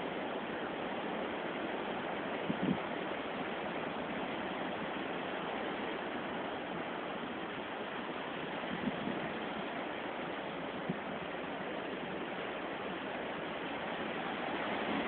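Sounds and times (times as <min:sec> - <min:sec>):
wind rushing over microphone: 0:02.4 - 0:03.0, 0:08.4 - 0:09.8, 0:13.6 - 0:15.0.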